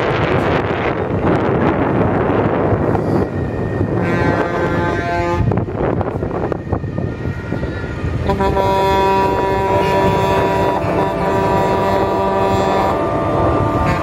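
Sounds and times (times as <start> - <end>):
wind noise: 0.0 - 14.0
vehicle horns honking: 4.0 - 5.5, 8.2 - 14.0.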